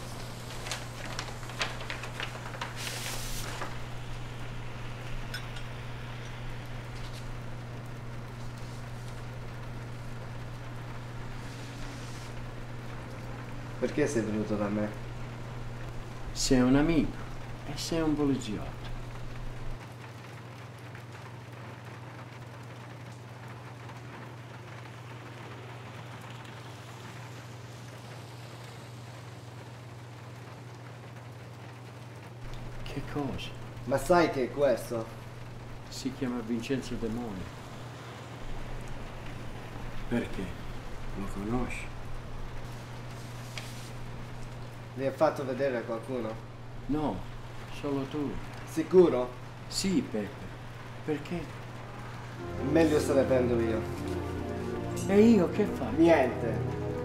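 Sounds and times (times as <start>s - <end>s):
paper envelope rustling: 0.0s - 4.6s
background hiss: 0.0s - 19.8s, 32.4s - 57.0s
low hum: 0.0s - 19.8s
steady low hum: 0.0s - 19.8s, 32.4s - 57.0s.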